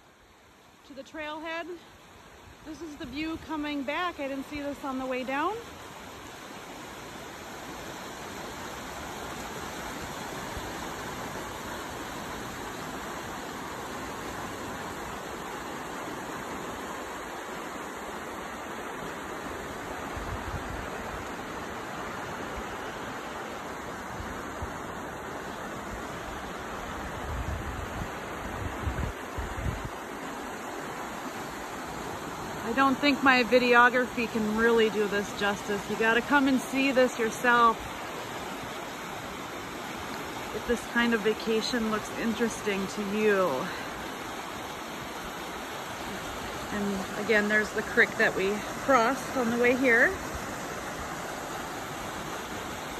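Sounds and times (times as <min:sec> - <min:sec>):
creek water flowing: 0:00.0 - 0:52.9
wind buffeting microphone: 0:26.9 - 0:30.0.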